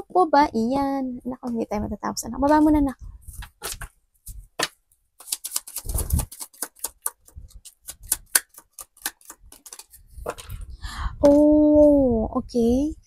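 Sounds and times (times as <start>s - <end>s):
cards being shuffled: 3.4s - 3.9s, 4.6s - 10.6s.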